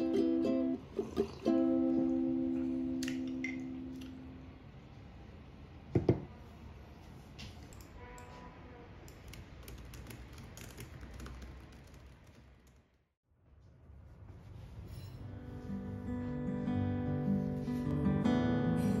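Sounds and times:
laptop keyboard typing: 0:09.1 - 0:12.9.

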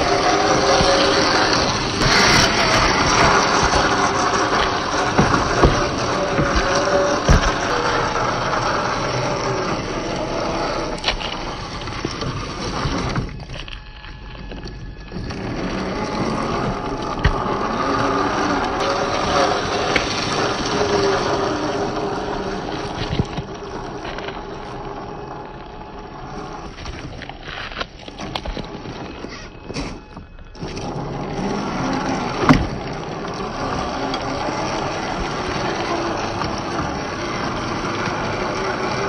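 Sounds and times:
small knocks: 0:00.0 - 0:13.8
electric motor and gears whining: 0:00.0 - 0:39.0
toy truck crawling over terrain: 0:00.0 - 0:39.0.

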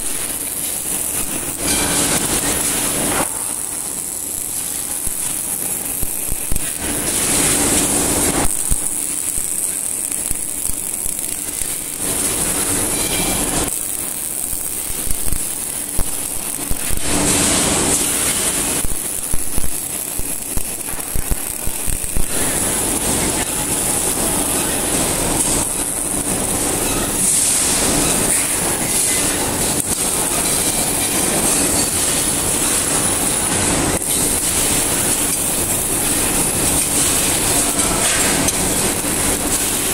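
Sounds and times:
welding arc hissing and crackling: 0:00.0 - 0:39.9.

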